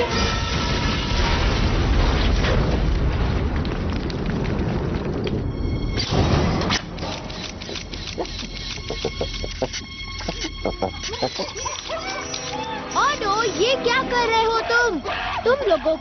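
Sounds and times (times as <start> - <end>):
background music: 5.4 - 16.0.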